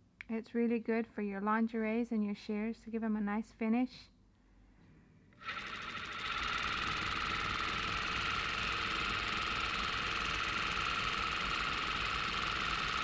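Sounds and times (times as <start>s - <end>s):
sewing machine whining: 5.4s - 13.0s.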